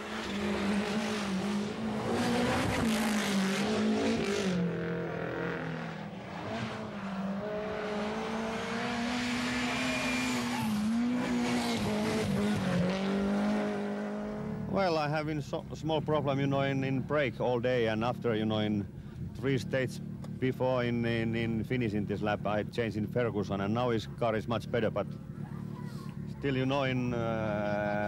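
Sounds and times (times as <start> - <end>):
rally car engines revving high: 0.0 - 14.8.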